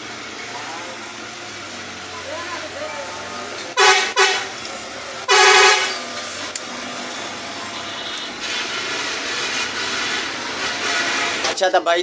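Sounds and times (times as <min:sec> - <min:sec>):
traffic noise: 0:00.0 - 0:12.0
vehicle horn honking: 0:03.8 - 0:04.6, 0:05.3 - 0:06.1, 0:07.7 - 0:08.6.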